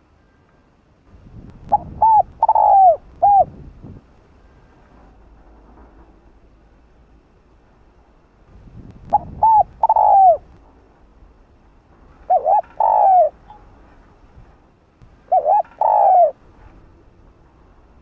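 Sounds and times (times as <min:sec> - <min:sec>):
dove cooing: 0:01.7 - 0:03.6, 0:09.1 - 0:10.5, 0:12.3 - 0:13.5, 0:15.3 - 0:16.4.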